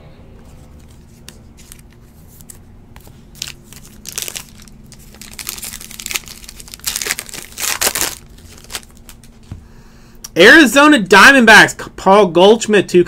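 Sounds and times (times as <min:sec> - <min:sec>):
foil wrapper crinkling and tearing: 0:01.6 - 0:09.4.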